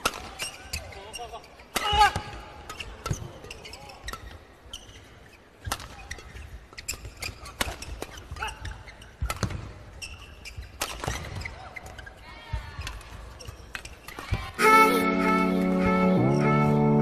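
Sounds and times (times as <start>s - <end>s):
rackets hitting shuttlecock: 0.0s - 0.9s, 1.7s - 4.4s, 5.6s - 11.6s
shoes squeaking on court: 0.0s - 14.6s.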